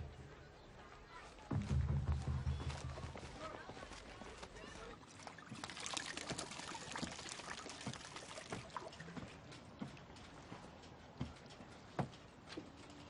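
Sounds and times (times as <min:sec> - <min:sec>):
liquid pouring from bottle: 0:05.3 - 0:08.6.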